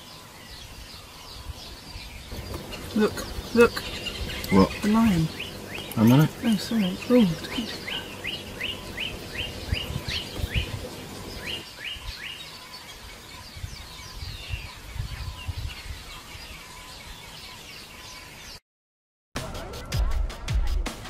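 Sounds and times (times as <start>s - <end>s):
birds chirping: 0.0s - 18.6s
low outdoor rumble: 2.2s - 11.6s.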